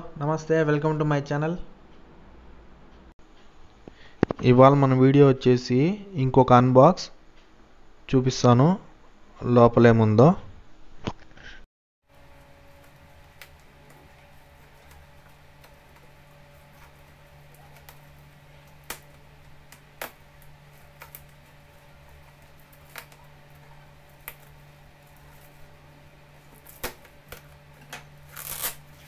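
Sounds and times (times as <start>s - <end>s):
steady low hum: 12.1s - 29.0s
hands handling cardboard parcel: 12.2s - 29.0s
scissors cutting packing tape: 14.6s - 24.6s, 26.5s - 29.0s.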